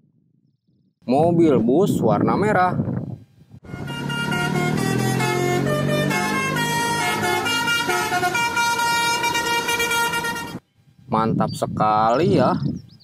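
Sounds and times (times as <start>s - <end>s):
musical air horn playing a tune: 3.6s - 10.6s.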